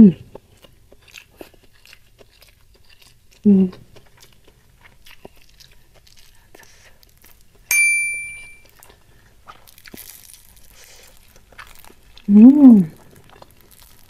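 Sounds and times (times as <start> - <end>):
crunching and chewing: 0.1 - 7.7, 8.6 - 14.0
bell-like ding: 7.7 - 8.6
tofu tearing crackle: 9.6 - 12.2, 13.0 - 14.0.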